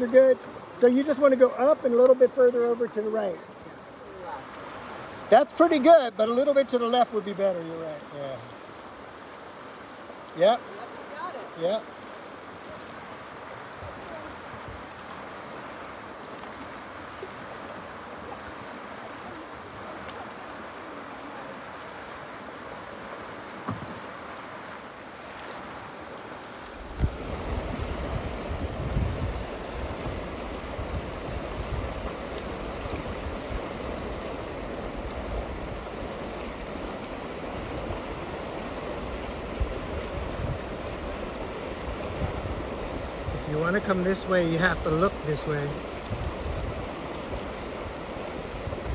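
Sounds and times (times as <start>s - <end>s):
river rapids rushing: 0.0s - 48.9s
wind rumble on microphone: 26.8s - 48.9s.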